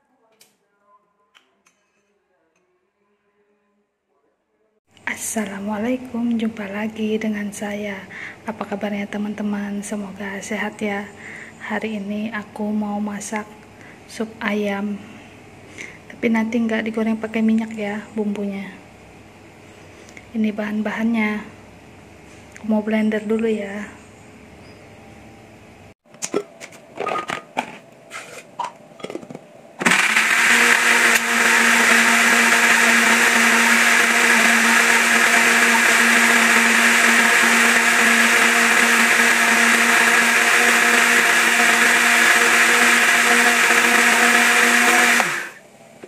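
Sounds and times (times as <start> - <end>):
blender running: 29.8 - 45.6.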